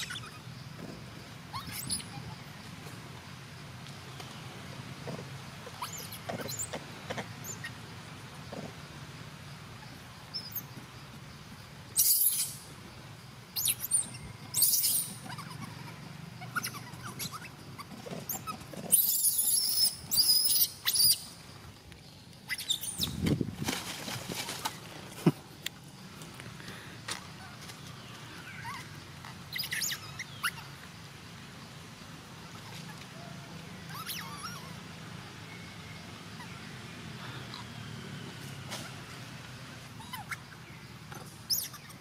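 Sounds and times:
baby monkey squealing: 0:00.0 - 0:00.5, 0:01.5 - 0:02.4, 0:05.6 - 0:06.8, 0:07.4 - 0:07.8, 0:12.0 - 0:12.7, 0:13.6 - 0:21.3, 0:22.5 - 0:23.2, 0:28.4 - 0:28.9, 0:29.5 - 0:30.7, 0:33.8 - 0:34.8, 0:40.0 - 0:42.0
leaves rustling: 0:13.6 - 0:31.1.

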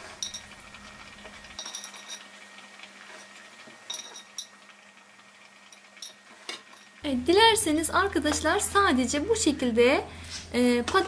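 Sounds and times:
clinks against glass jar: 0:01.6 - 0:02.2, 0:03.9 - 0:04.6.

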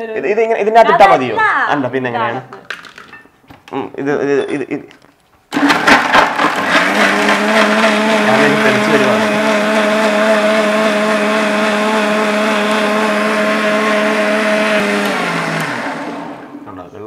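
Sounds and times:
blender motor whine: 0:05.6 - 0:16.6.

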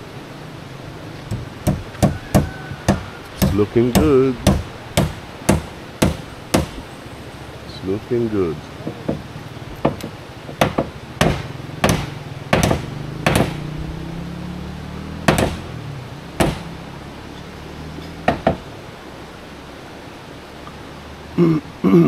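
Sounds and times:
hammer striking nails: 0:01.3 - 0:06.8, 0:08.8 - 0:09.2, 0:09.8 - 0:13.6, 0:15.3 - 0:15.7, 0:16.4 - 0:16.7, 0:18.2 - 0:18.6.

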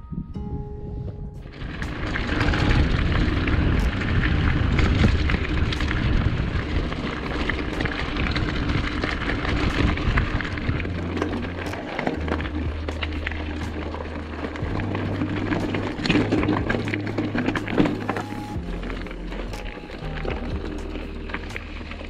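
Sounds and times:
wind buffeting the microphone: 0:00.0 - 0:13.0
tyres crunching on gravel: 0:01.4 - 0:22.0
bike rattling clicks: 0:01.5 - 0:21.7.

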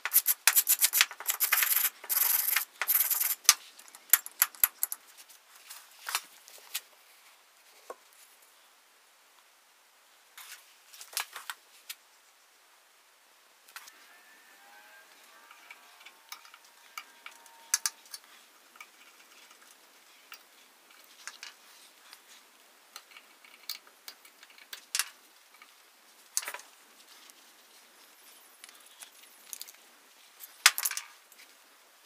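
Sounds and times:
metal hand drill parts clinking: 0:00.1 - 0:05.0.

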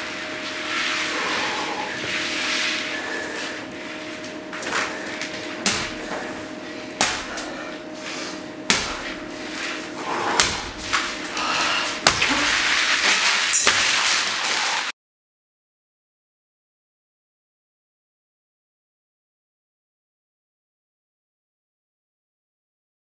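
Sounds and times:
faint hum: 0:00.0 - 0:13.3
sharp knocks or slams: 0:10.4 - 0:10.8.

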